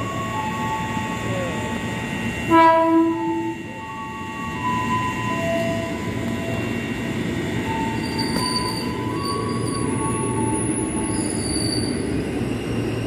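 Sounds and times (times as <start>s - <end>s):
train wheel and rail rumble: 0.0s - 13.0s
high thin wheel squeal: 7.6s - 12.1s.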